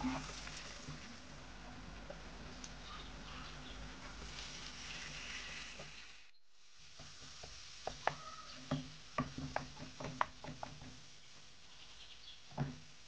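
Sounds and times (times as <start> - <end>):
wooden spoon scraping a pan: 0.0 - 1.2, 4.0 - 6.3
meat sizzling in a frying pan: 4.2 - 9.5.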